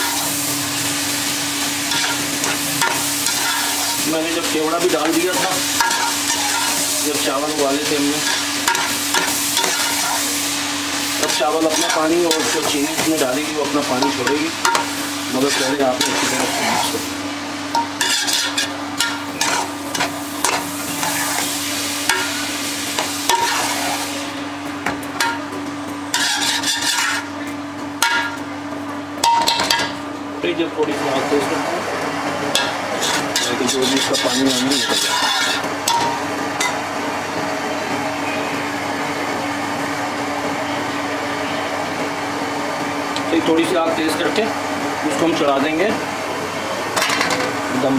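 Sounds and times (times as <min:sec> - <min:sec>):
sizzling hiss: 0:00.0 - 0:24.4
metal spoon scraping pot: 0:17.8 - 0:21.5, 0:26.1 - 0:27.3, 0:32.6 - 0:36.8.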